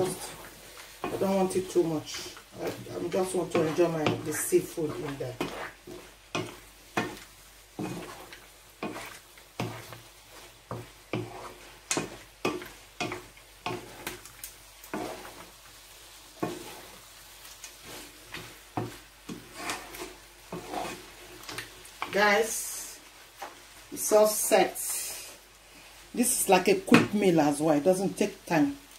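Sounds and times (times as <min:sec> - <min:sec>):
spatula scraping and knocking pan: 0:00.0 - 0:15.6, 0:16.3 - 0:17.1, 0:17.7 - 0:22.2
light sizzle: 0:00.0 - 0:28.9.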